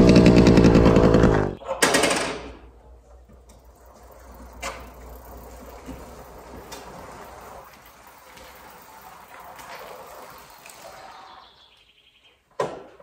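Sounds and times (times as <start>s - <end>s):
motorcycle engine idling: 0.0s - 1.6s.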